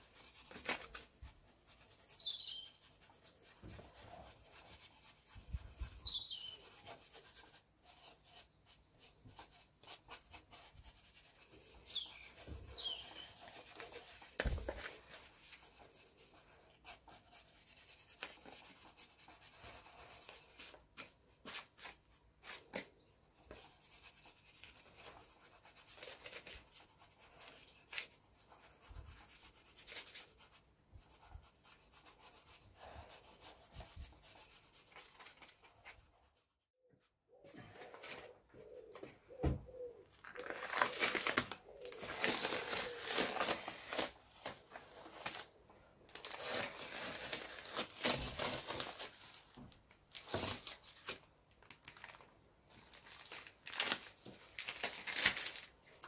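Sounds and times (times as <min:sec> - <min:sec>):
bristle brush scratching: 0:00.0 - 0:36.7
bird chirp: 0:01.9 - 0:02.8, 0:05.7 - 0:06.8, 0:11.6 - 0:13.5.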